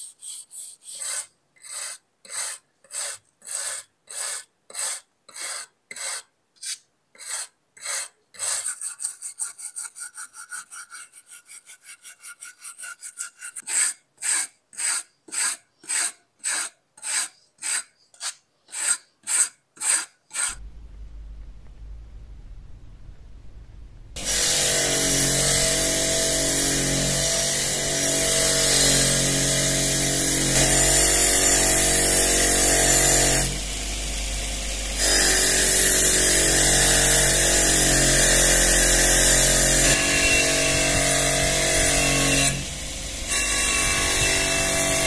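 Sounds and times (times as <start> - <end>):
hand abrasion strokes on knife: 0.0 - 20.6
steady low hum: 20.6 - 24.9, 33.4 - 36.3.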